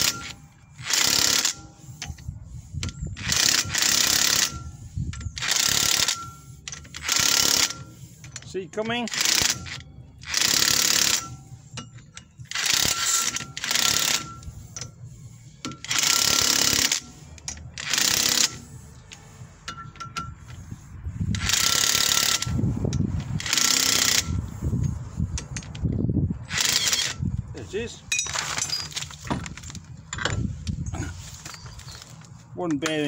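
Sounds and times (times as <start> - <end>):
impact wrench hammering: 5.4 - 8.0, 8.8 - 15.0, 15.6 - 18.7, 19.6 - 20.6.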